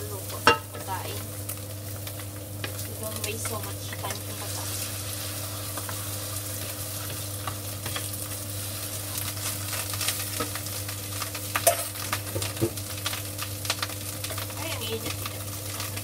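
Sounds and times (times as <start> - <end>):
food sizzling in frying pan: 0.0 - 16.0
spatula knocking and scraping pan: 0.4 - 1.0.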